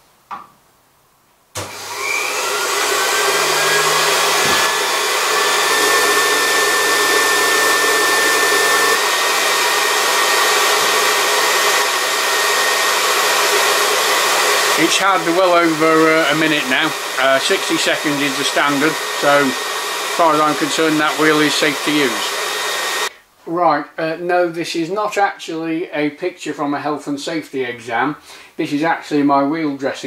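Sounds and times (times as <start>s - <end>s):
grinder motor whining: 1.6s - 23.1s.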